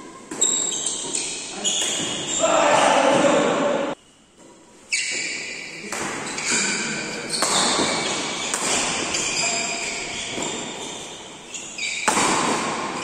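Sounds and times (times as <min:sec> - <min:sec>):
rackets hitting a shuttlecock: 0:05.1 - 0:10.7, 0:11.8 - 0:13.0.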